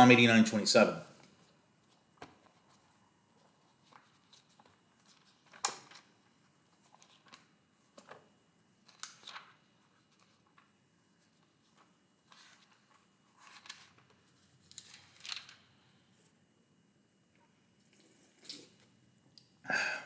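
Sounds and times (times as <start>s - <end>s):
book pages turning: 1.4s - 8.2s, 8.8s - 16.4s.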